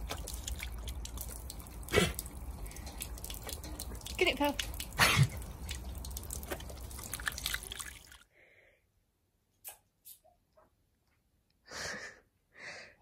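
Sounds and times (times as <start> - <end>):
water spray splattering: 0.0 - 8.2.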